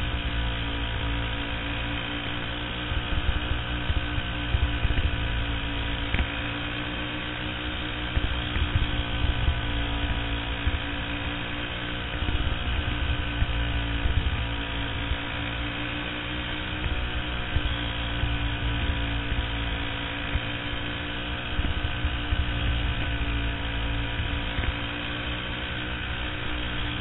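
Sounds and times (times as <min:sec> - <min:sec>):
kart engine running hard: 0:00.0 - 0:27.0
wind rumble on microphone: 0:12.2 - 0:15.3.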